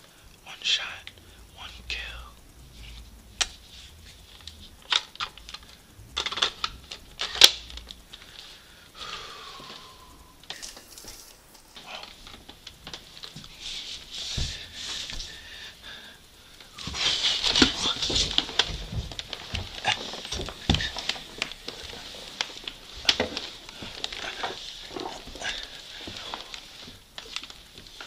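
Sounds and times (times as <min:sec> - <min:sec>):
plastic toy handling noise: 0:02.8 - 0:08.6
footsteps on wooden floor: 0:14.2 - 0:15.3.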